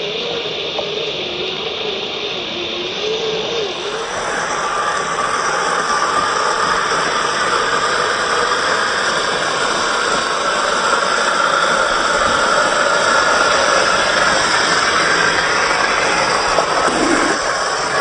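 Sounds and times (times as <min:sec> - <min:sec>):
electric motor whining: 0:00.0 - 0:18.0
wheels on gravel: 0:09.8 - 0:18.0.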